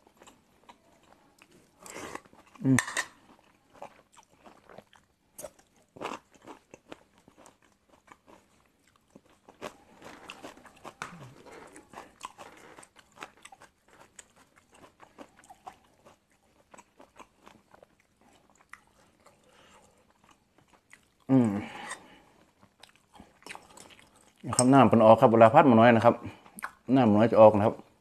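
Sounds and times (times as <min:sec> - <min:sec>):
person chewing with crunches: 0:00.0 - 0:24.8
wet mouth clicks: 0:26.6 - 0:26.8.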